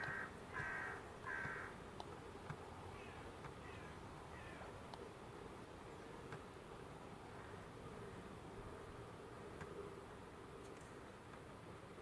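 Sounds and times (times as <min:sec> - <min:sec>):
bird calling: 0:00.0 - 0:01.8, 0:02.9 - 0:04.7.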